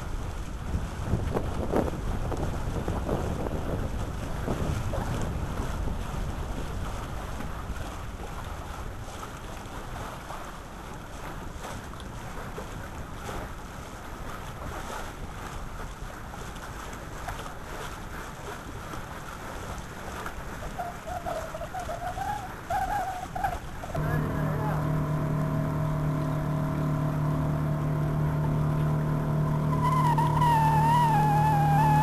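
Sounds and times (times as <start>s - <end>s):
wind buffeting microphone: 0.0s - 11.5s
water rushing along hull: 0.0s - 32.0s
faint wavering tone: 24.0s - 32.0s.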